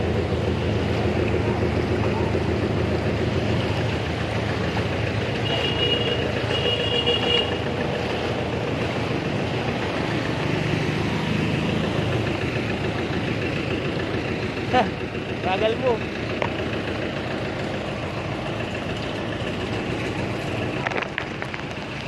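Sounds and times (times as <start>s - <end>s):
street traffic engines: 0.0s - 22.0s.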